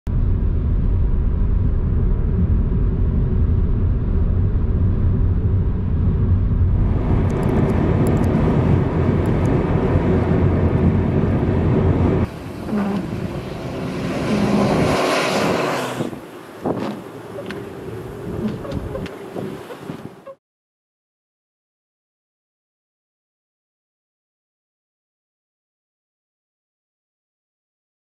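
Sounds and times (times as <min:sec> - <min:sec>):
vehicle interior rumble: 0:00.1 - 0:20.4
hissing rush of noise: 0:06.6 - 0:20.0.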